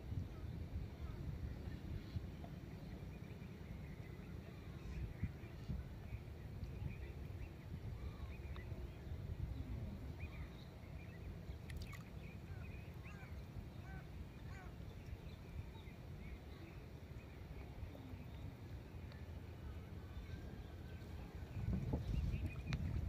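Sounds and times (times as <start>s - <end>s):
birds chirping: 6.7s - 23.0s.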